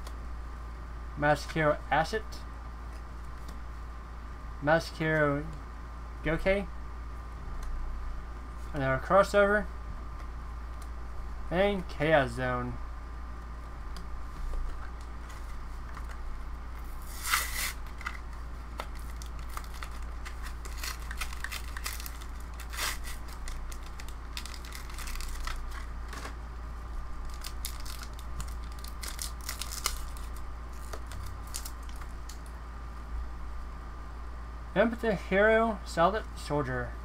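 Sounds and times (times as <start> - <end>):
cards being handled: 16.8 - 26.4, 27.3 - 32.4
foil wrapper tearing: 17.0 - 18.2, 18.9 - 25.9, 27.2 - 32.4.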